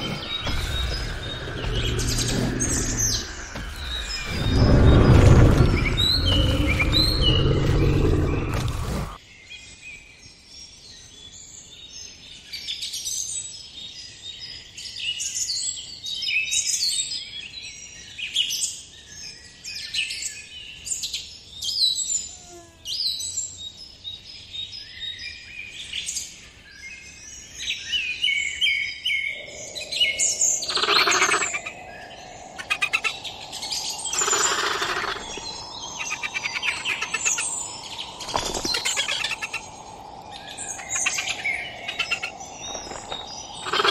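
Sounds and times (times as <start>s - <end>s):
deep dinosaur roar: 0.0s - 9.2s
high bird chirps: 29.2s - 43.9s.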